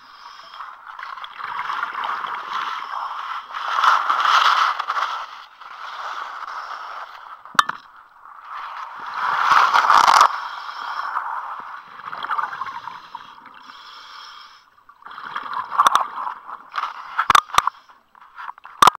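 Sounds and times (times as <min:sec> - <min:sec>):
diver breathing through regulator: 0:10.3 - 0:11.3, 0:12.7 - 0:14.7.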